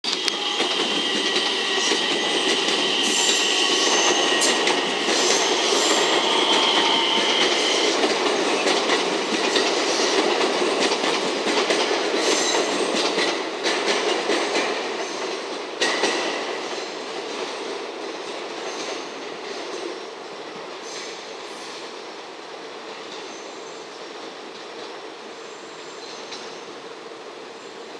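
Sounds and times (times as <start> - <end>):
train wheels clattering over rail joints: 0.1 - 20.0
high wheel squeal: 0.2 - 8.0.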